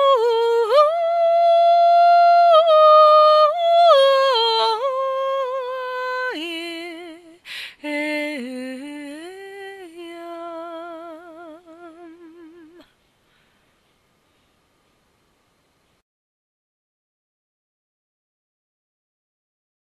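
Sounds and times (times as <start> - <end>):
woman singing a wordless chant: 0.0 - 12.9
singer breathing in: 7.4 - 7.8, 12.9 - 14.6.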